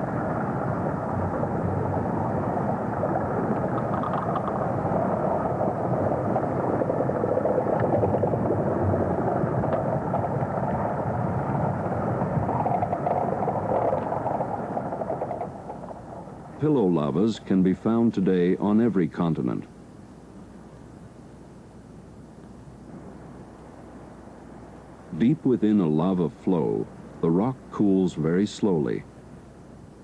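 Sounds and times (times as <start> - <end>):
underwater rushing rumble: 0.0 - 17.3
faint crackles: 0.0 - 18.8.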